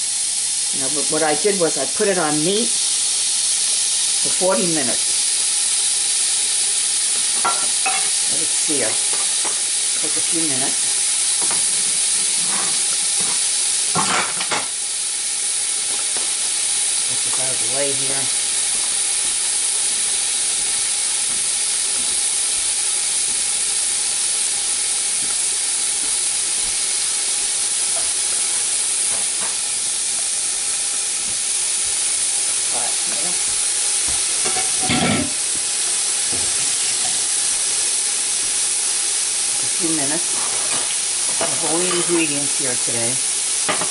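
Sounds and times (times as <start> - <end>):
meat sizzling in hot oil: 0.0 - 43.9.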